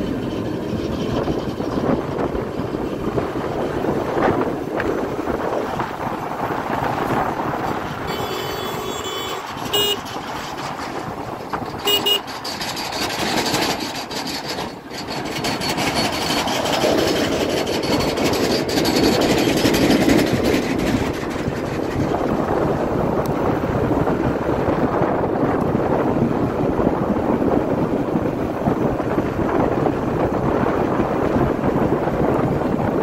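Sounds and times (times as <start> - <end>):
motorcycle engine and road noise: 0.0 - 33.0
wind noise: 0.0 - 33.0
vehicle horn beeping: 8.0 - 10.2, 11.8 - 12.3.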